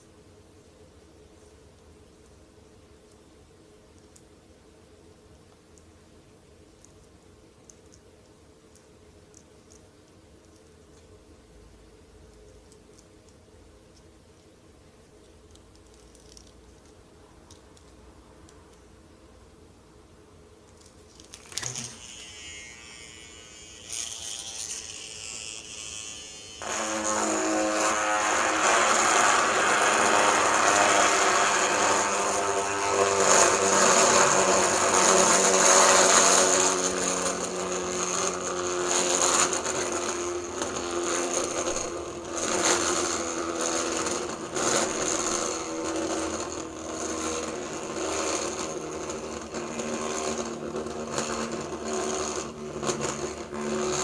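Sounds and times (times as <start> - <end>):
gyroscope whirring and rattling: 20.8 - 54.0
gyroscope click: 21.2 - 26.6.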